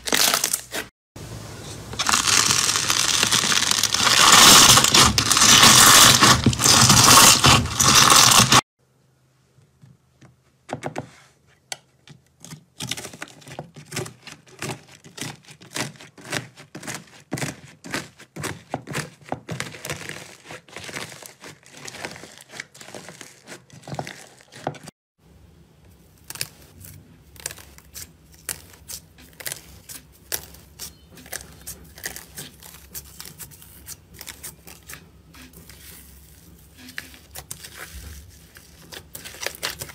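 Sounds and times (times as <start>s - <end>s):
slime scraped in tub: 1.7s - 8.6s, 14.6s - 24.9s, 26.3s - 39.9s
slime popping and crackling: 2.0s - 8.6s.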